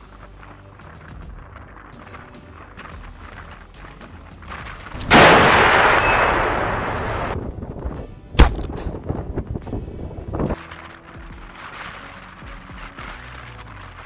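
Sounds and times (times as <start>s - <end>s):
heavy gunfire blast: 5.0s - 7.4s
sharp gunshot: 5.0s - 7.4s, 8.4s - 8.8s.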